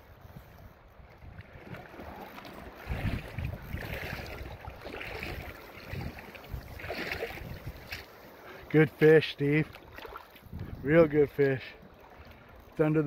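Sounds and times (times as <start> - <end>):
wind buffeting microphone: 0.0 - 8.1, 9.6 - 11.2
river water lapping: 0.0 - 13.0.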